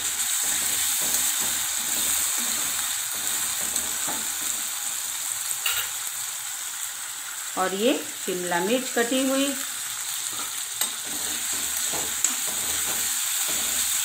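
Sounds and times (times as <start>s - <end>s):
spatula stirring in metal pan: 0.0s - 5.0s, 10.2s - 14.0s
vegetables sizzling in hot oil: 0.0s - 14.0s.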